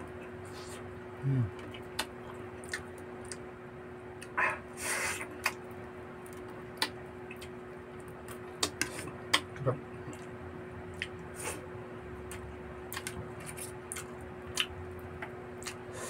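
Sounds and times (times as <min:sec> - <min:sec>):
faint steady hum: 0:00.0 - 0:16.0
lip smacks and mouth clicks: 0:01.6 - 0:03.4.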